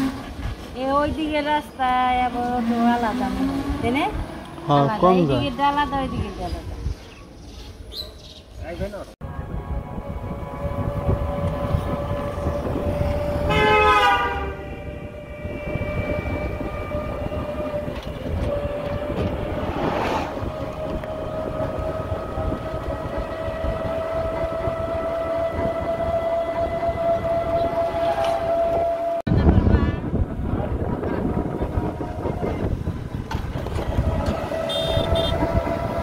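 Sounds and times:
road rumble: 0:00.0 - 0:36.0
wind: 0:00.0 - 0:36.0
rush of passing noise: 0:09.2 - 0:26.2
vehicle horn: 0:09.4 - 0:17.8, 0:34.0 - 0:36.0.

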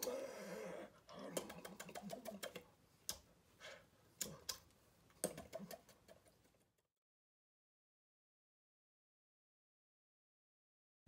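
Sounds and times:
faint vocal murmur: 0:00.0 - 0:02.6
hand and mouth taps and clicks: 0:01.3 - 0:03.3, 0:04.2 - 0:06.9.

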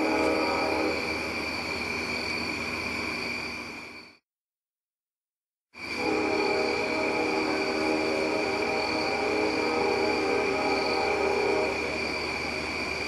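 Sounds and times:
locomotive air horn chord: 0:00.0 - 0:01.2, 0:05.9 - 0:12.0.

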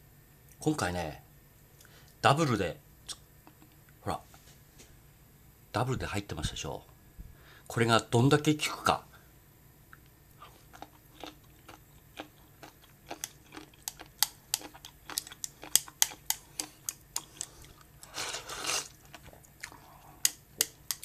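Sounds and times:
person crunching pickles: 0:10.3 - 0:21.0
person slurping: 0:16.5 - 0:20.4.

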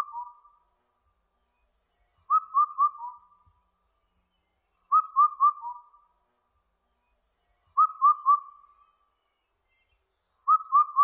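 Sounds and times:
cuckoo whistled song: 0:00.0 - 0:00.6, 0:02.2 - 0:03.5, 0:04.9 - 0:06.1, 0:07.7 - 0:09.1, 0:10.4 - 0:11.0.

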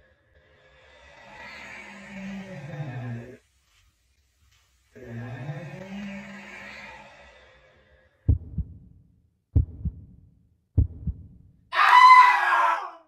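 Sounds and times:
heartbeat thumps: 0:08.3 - 0:11.5
loud shrill cry: 0:11.7 - 0:13.0.

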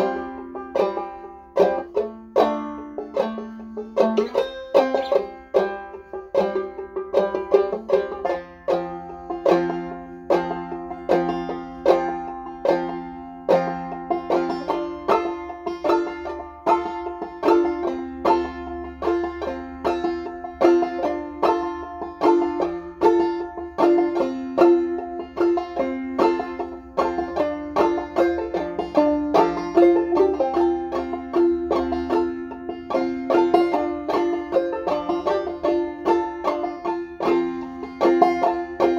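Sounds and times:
banjo playing: 0:00.0 - 0:38.9.

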